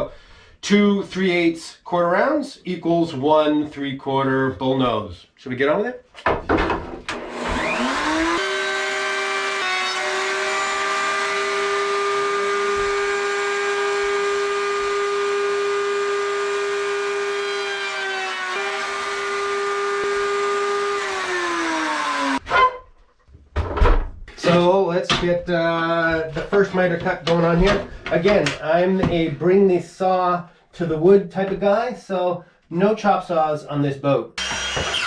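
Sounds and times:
router cutting wood: 7.0s - 22.8s, 34.4s - 35.0s
router whining: 7.0s - 22.8s, 34.4s - 35.0s.

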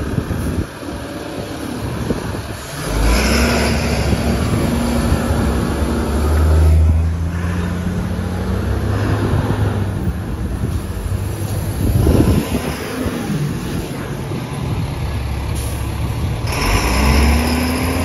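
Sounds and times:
bus engine drone: 0.0s - 18.0s
tyres hissing on wet road: 10.5s - 14.6s, 15.5s - 17.4s.

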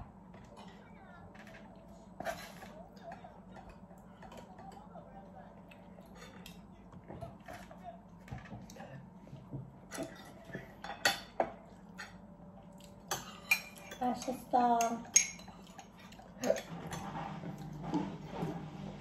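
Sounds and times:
spoon and chopsticks clinking porcelain: 13.1s - 17.0s.

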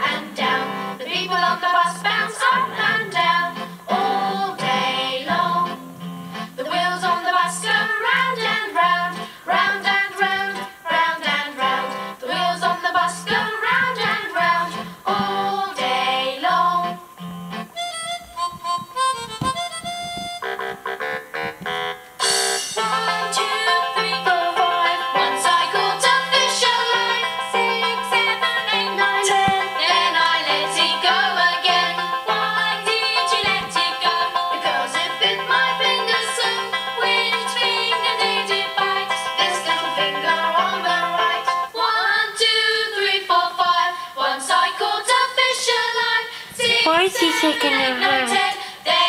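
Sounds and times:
child singing: 0.0s - 5.7s, 41.8s - 49.0s
children singing: 0.0s - 5.8s, 6.6s - 17.0s, 22.8s - 49.0s
bouncy instrumental music: 9.9s - 41.6s, 46.6s - 48.8s
bright instrumental backing: 13.3s - 24.5s, 46.6s - 48.8s.

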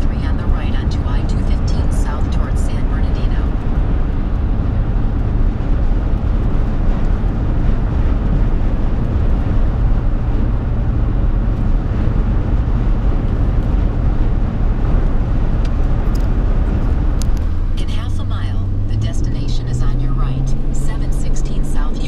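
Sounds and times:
truck cabin rumble: 0.0s - 22.0s.

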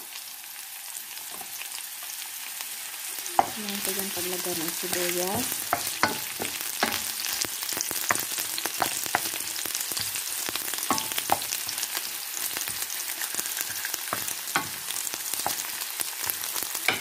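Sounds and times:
onions sizzling in oil: 0.0s - 17.0s
spatula scraping a pan: 5.5s - 17.0s.

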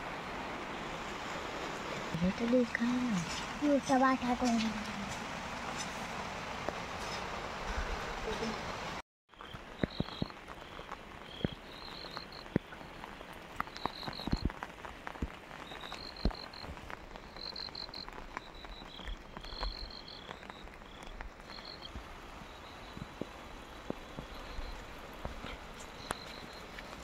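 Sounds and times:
frogs trilling: 9.3s - 13.1s, 15.6s - 23.1s.

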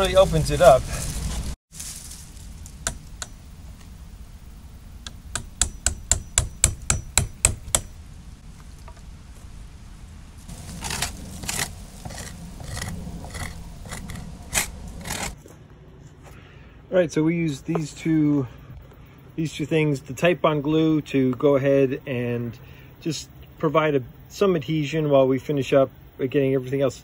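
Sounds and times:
hammer striking chisel: 5.1s - 8.0s
blade scraping soft wood: 10.4s - 15.4s.

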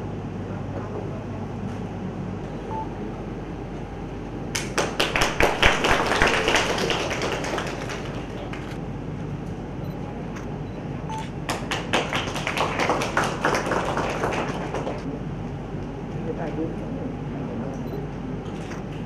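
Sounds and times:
low room hum: 0.0s - 19.0s
small group applauding: 4.5s - 8.8s, 11.4s - 15.2s.

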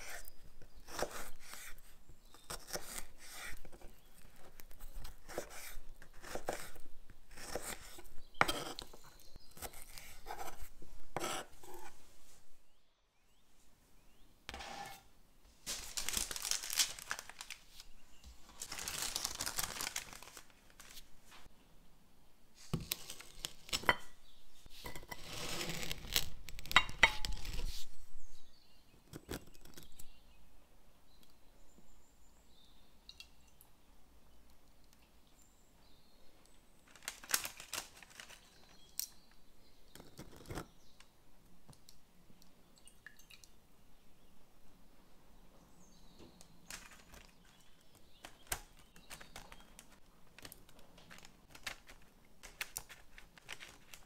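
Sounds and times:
paper tearing and crinkling: 15.6s - 17.9s, 18.5s - 21.1s, 25.2s - 26.6s, 36.9s - 38.7s, 48.2s - 54.0s.

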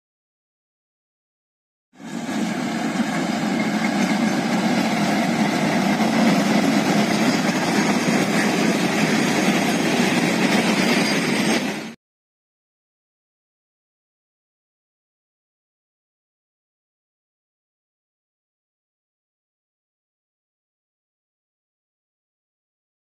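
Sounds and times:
diesel locomotive engine running: 2.0s - 12.0s.

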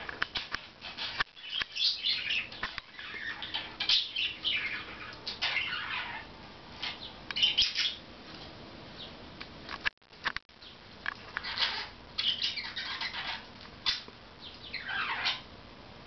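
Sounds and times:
parakeets chirping: 0.3s - 8.1s, 10.6s - 15.5s.

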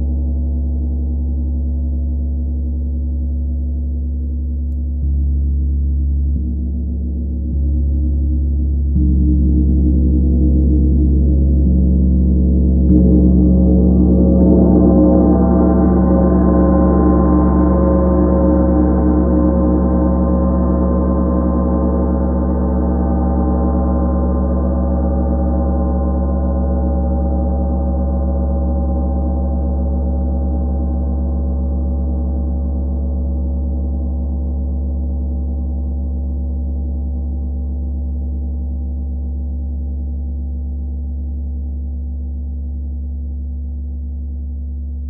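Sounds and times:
gong ringing: 12.9s - 21.4s.

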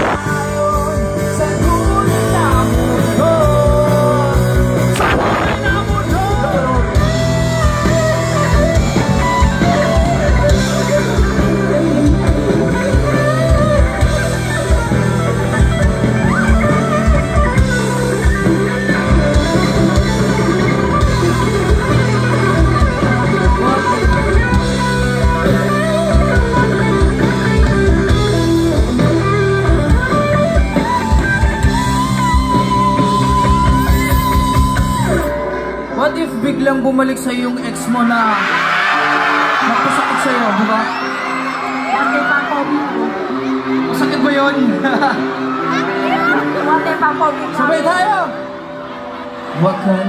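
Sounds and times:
drum kit: 0.0s - 35.4s
bass: 0.0s - 48.4s
guitar: 0.0s - 50.0s.

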